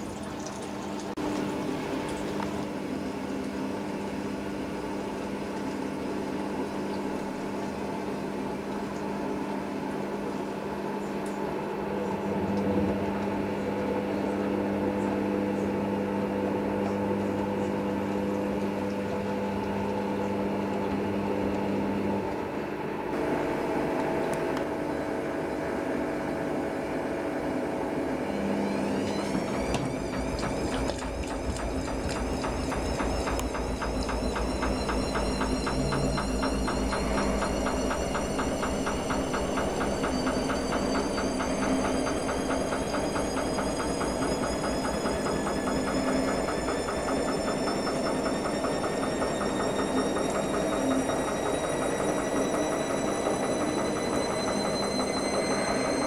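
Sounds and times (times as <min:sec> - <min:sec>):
washing machine drum turning: 0:00.0 - 0:10.7, 0:27.0 - 0:56.0
rising motor whine: 0:11.7 - 0:56.0.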